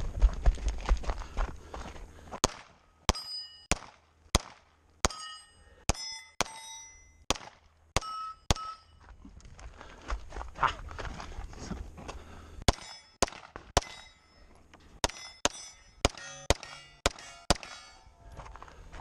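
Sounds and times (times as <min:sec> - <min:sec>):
pistol shots: 0:02.4 - 0:05.2, 0:07.3 - 0:08.7, 0:12.7 - 0:14.0, 0:15.0 - 0:18.0
ringing ding of struck steel: 0:03.1 - 0:03.7, 0:05.1 - 0:07.2, 0:08.0 - 0:09.0, 0:13.8 - 0:14.5.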